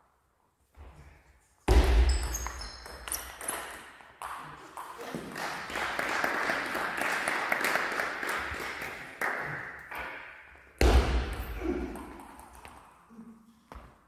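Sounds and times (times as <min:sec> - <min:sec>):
spectators clapping: 0:04.8 - 0:10.1.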